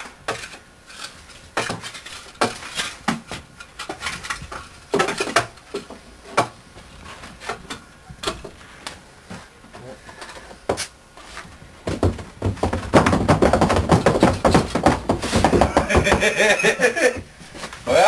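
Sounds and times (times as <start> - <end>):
wooden floorboards knocking and scraping: 1.5 - 8.6, 10.4 - 17.7.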